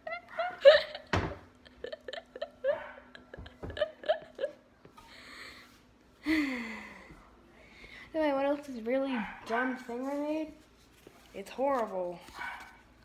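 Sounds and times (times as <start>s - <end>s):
girl giggling: 0.0s - 4.7s.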